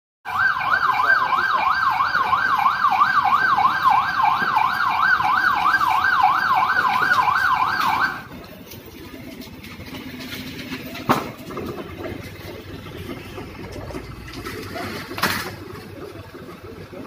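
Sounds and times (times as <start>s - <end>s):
emergency siren yelping: 0.2s - 8.4s.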